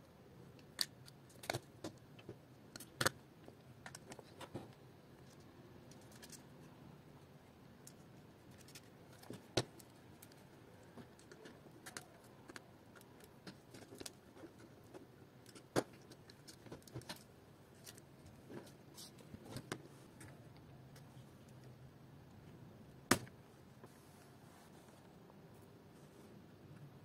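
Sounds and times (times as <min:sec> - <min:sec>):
small clicks of parts handled: 0:05.2 - 0:06.5.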